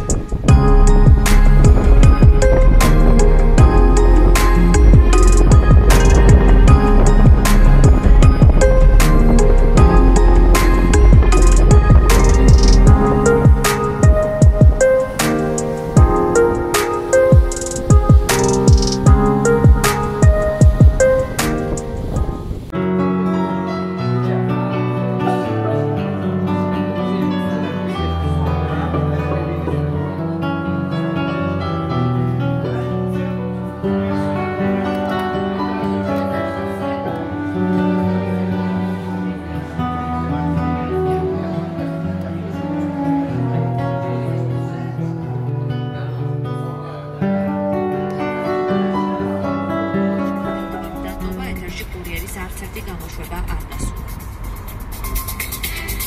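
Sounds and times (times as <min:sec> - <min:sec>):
low bass line: 0:00.0 - 0:22.7
grand piano: 0:00.0 - 0:52.8.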